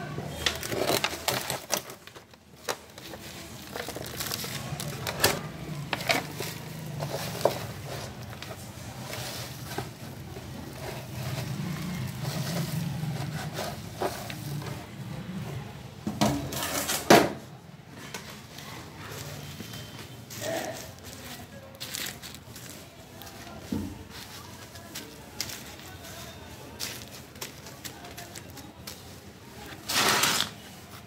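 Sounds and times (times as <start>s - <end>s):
scraps and soil mixed by hand: 3.0s - 14.7s, 18.4s - 31.0s.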